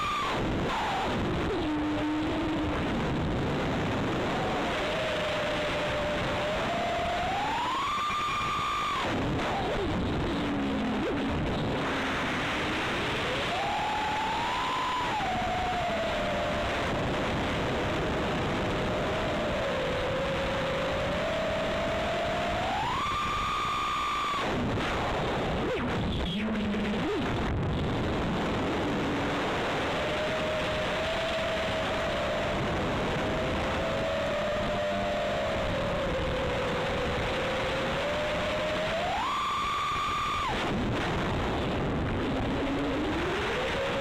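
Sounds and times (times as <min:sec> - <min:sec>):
quadcopter motors whining: 0:07.3 - 0:09.0.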